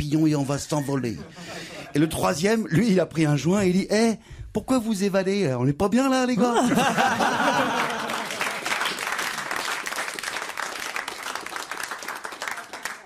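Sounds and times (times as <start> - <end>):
audience laughter: 1.0 - 2.4, 6.5 - 8.7
audience applauding: 7.1 - 13.0.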